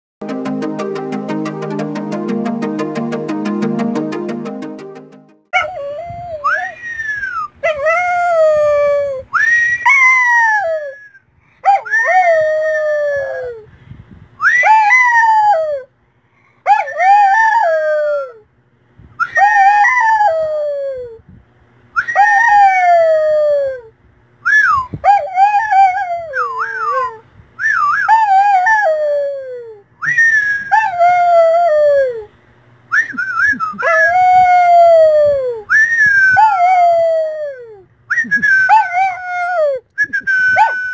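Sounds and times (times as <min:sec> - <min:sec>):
dog howling: 0:05.6 - 0:13.6, 0:14.5 - 0:15.9, 0:16.7 - 0:18.4, 0:19.3 - 0:21.0, 0:22.0 - 0:23.8, 0:25.0 - 0:32.3, 0:33.8 - 0:37.8, 0:38.5 - 0:39.8, 0:40.4 - 0:40.9.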